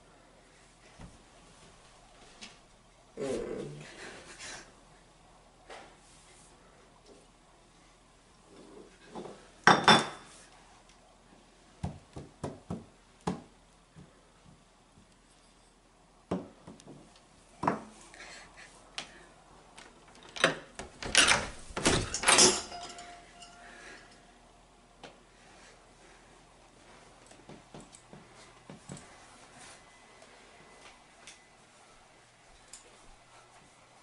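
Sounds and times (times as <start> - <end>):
forks clattering on wooden floor: 21.2 - 24.2
glass bottle clinking on wood: 22.4 - 23.6.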